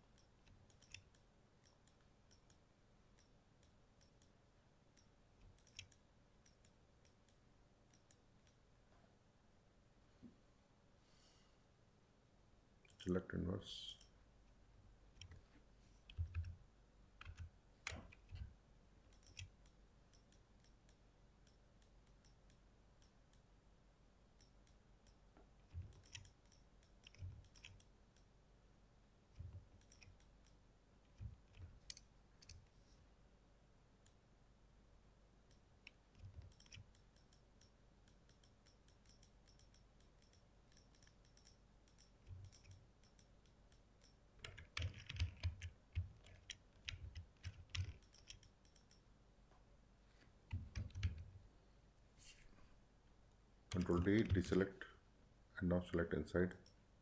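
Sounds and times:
computer mouse clicks: 0:00.0 - 0:04.4, 0:05.0 - 0:08.6, 0:15.1 - 0:16.6, 0:17.2 - 0:18.5, 0:19.1 - 0:23.4, 0:24.4 - 0:28.3, 0:29.4 - 0:32.7, 0:35.5 - 0:49.0, 0:50.5 - 0:51.3, 0:53.7 - 0:54.6.

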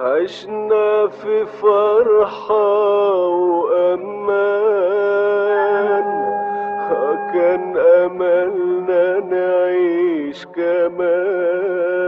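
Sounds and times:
held steady accompaniment: 0:03.7 - 0:12.0
ornamented sliding melody: 0:04.2 - 0:10.2.

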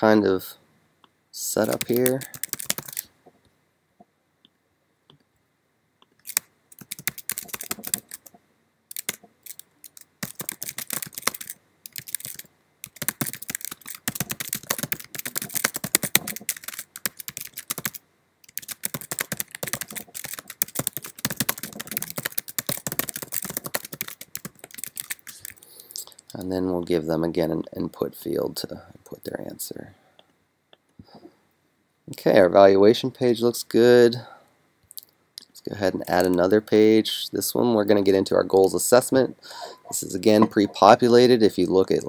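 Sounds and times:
keyboard typing: 0:01.6 - 0:03.1, 0:06.2 - 0:25.6.

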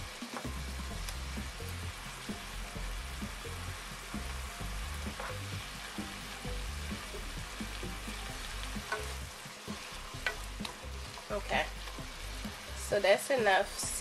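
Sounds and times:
vegetables sizzling in a frying pan: 0:00.0 - 0:14.0
wooden spoon stirring: 0:06.9 - 0:12.9.

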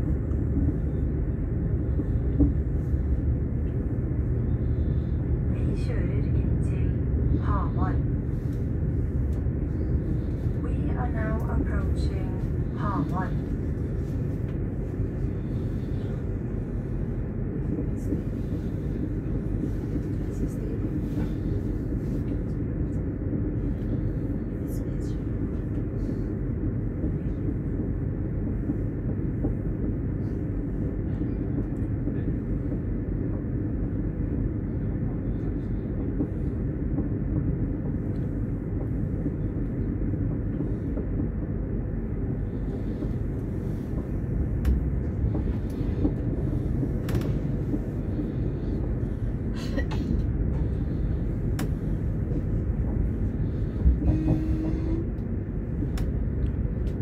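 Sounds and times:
train rumble inside carriage: 0:00.0 - 0:57.0
short tone: 0:54.0 - 0:55.0.

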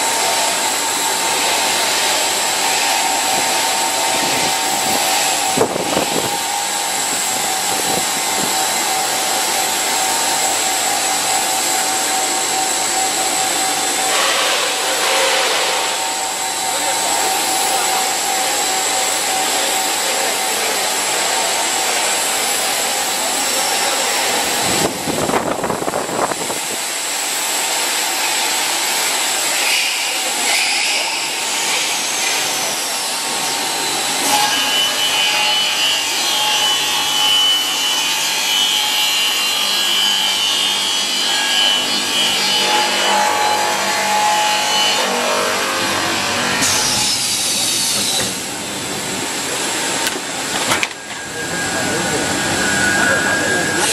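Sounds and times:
high machine whine: 0:00.0 - 0:53.9
loud machine noise: 0:00.0 - 0:53.9
high squeal: 0:51.0 - 0:53.9.

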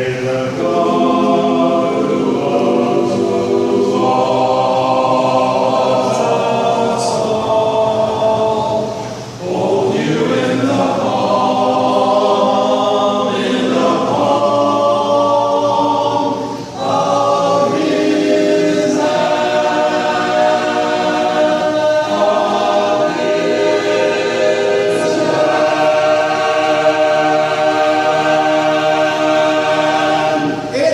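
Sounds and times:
group singing a cappella harmony: 0:00.0 - 0:30.9.

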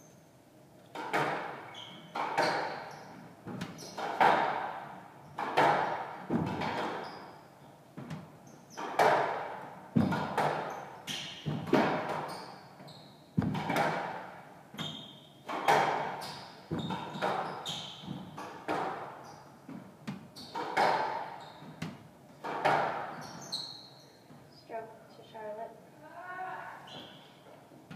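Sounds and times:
ball hitting walls: 0:00.9 - 0:07.1, 0:08.0 - 0:12.4, 0:13.4 - 0:14.4, 0:15.5 - 0:23.5
racquet striking squash ball: 0:00.9 - 0:07.3, 0:08.0 - 0:12.6, 0:13.4 - 0:23.9
shoes squeaking on wooden floor: 0:01.7 - 0:04.4, 0:06.3 - 0:09.2, 0:10.0 - 0:13.8, 0:14.7 - 0:24.6, 0:26.9 - 0:27.9.

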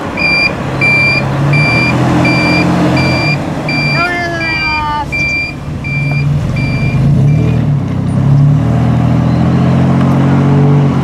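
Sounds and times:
vehicle engine running: 0:00.0 - 0:10.4
reversing beeper: 0:00.2 - 0:07.7.

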